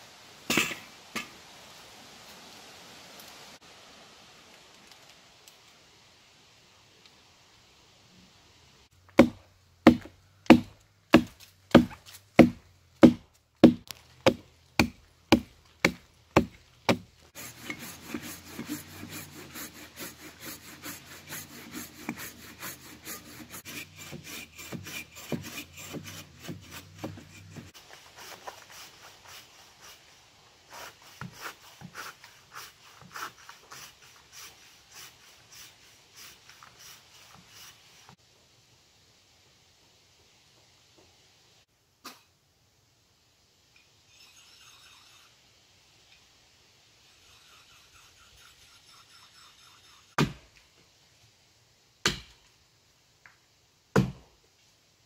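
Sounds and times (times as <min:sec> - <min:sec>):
axe chopping into log: 0:09.1 - 0:17.1, 0:50.2 - 0:50.5, 0:52.0 - 0:52.4, 0:53.9 - 0:54.2
bow saw rasping through log: 0:09.2 - 0:38.2, 0:44.1 - 0:45.4, 0:47.1 - 0:50.3.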